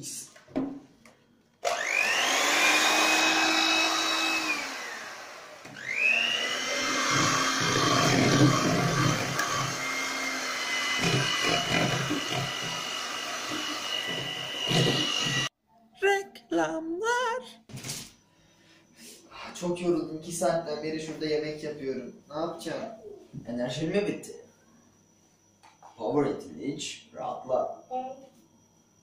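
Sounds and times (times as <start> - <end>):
electric hand mixer whining: 1.6 - 15.5.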